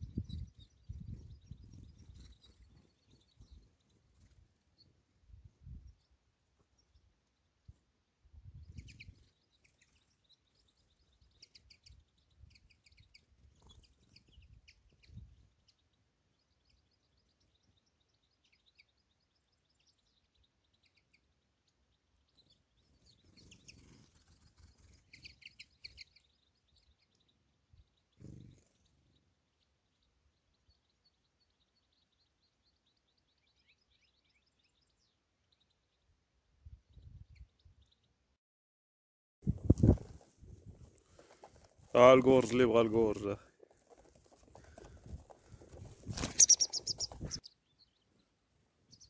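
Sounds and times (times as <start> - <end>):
wind rumble on microphone: 0.0 - 3.7, 5.2 - 6.0, 8.3 - 9.2, 36.6 - 37.8, 39.4 - 41.0, 46.9 - 47.4
small songbirds chirping: 0.0 - 38.4, 39.4 - 49.0.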